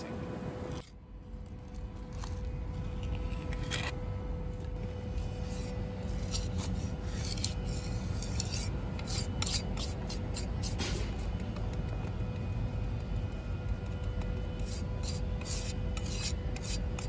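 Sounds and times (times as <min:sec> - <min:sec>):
trowel scraping mortar: 0:02.1 - 0:04.0, 0:05.0 - 0:11.9, 0:12.9 - 0:17.0.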